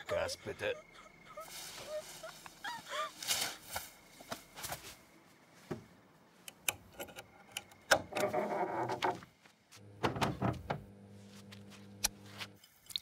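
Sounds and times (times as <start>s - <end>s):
lock pick clicking in door lock: 6.5s - 8.3s.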